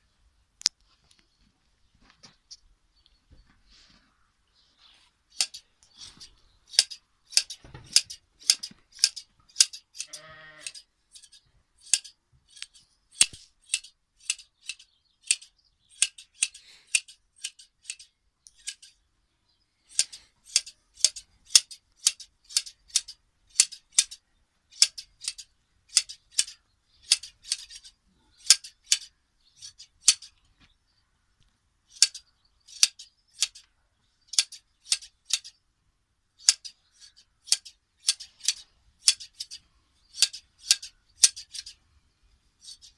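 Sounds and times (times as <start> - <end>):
shears snipping fleece: 4.9 - 19.0, 19.9 - 24.2, 24.8 - 30.4, 36.4 - 39.6, 42.6 - 42.9
sheep bleating: 10.0 - 10.8.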